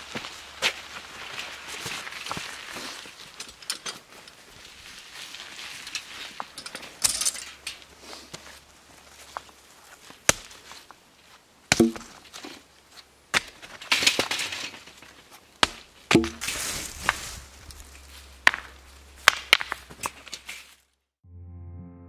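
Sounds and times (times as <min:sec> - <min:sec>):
rocks rattling in cart: 0:13.3 - 0:20.7
rocks clacking together: 0:13.3 - 0:20.8.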